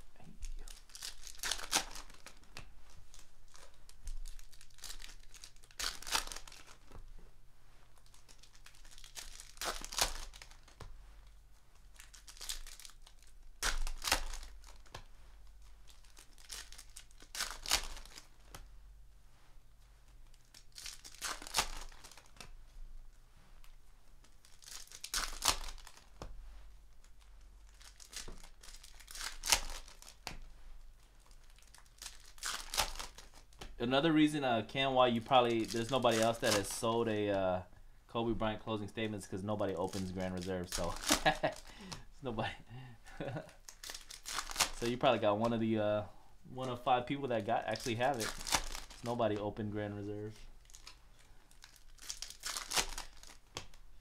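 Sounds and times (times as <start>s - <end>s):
wrappers crinkling: 0.0s - 7.2s, 7.8s - 18.7s, 19.6s - 37.6s, 38.3s - 42.5s, 43.1s - 54.0s
foil packs tearing open: 0.6s - 2.4s, 3.5s - 6.8s, 8.0s - 10.8s, 12.0s - 14.9s, 15.9s - 18.3s, 20.5s - 22.4s, 24.4s - 26.1s, 27.7s - 30.2s, 31.2s - 33.5s, 35.2s - 37.2s, 39.8s - 41.7s, 43.2s - 45.2s, 47.7s - 49.4s, 50.6s - 53.4s.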